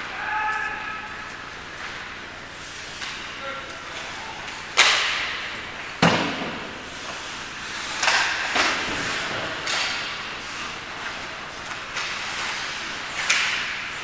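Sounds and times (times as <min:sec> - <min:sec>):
sharp thuds echoing in hall: 0:06.0 - 0:06.8.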